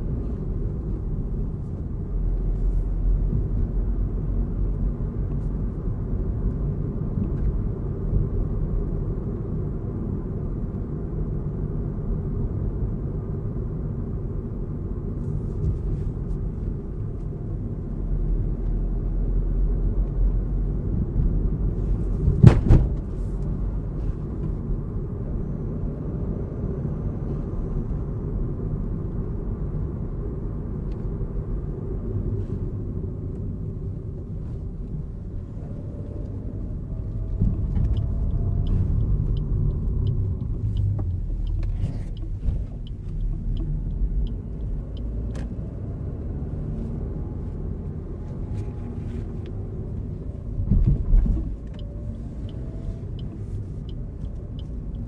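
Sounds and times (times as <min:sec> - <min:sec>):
car engine and road rumble: 0:00.0 - 0:55.0
sharp thump: 0:22.2 - 0:23.1.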